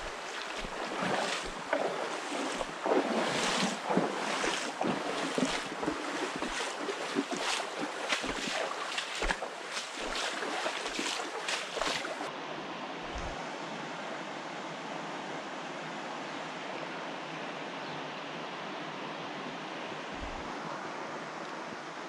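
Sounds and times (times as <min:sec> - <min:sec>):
surf rushing: 0:00.0 - 0:12.3
wind on microphone: 0:20.1 - 0:20.6.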